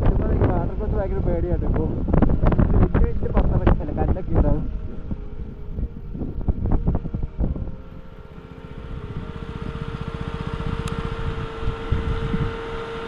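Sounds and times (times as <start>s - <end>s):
steady whine: 0.0s - 13.0s
wind buffeting microphone: 0.0s - 13.0s
vehicle running on road: 5.6s - 13.0s.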